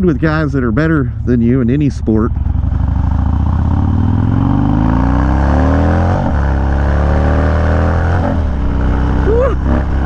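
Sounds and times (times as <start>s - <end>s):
motorcycle engine accelerating hard: 2.2s - 10.0s.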